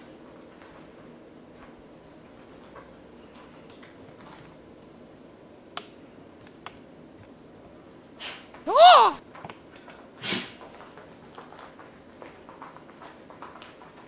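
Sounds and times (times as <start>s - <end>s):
dog claws clicking on tiled floor: 2.3s - 4.6s, 9.3s - 14.0s.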